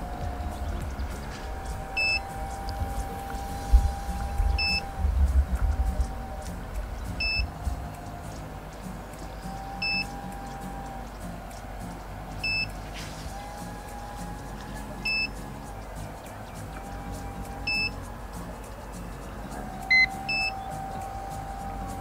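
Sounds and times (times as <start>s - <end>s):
low rumble: 0.0s - 15.9s.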